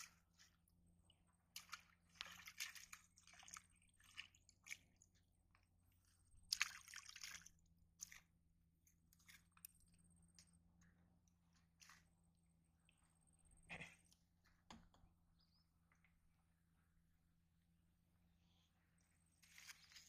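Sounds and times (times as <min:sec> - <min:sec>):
pond water splashing: 0:00.0 - 0:08.4, 0:09.0 - 0:10.0, 0:19.4 - 0:20.0.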